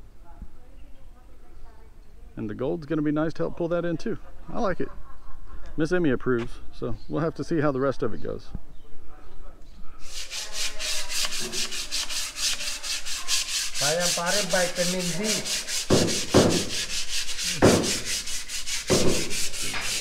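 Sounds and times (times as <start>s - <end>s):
sandpaper rubbing: 10.0s - 20.0s.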